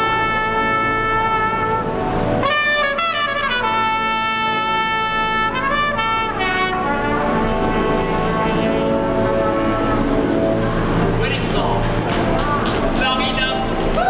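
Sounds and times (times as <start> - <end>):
trumpet playing slow melody: 0.0 - 11.2
electronic keyboard accompaniment: 0.0 - 14.0.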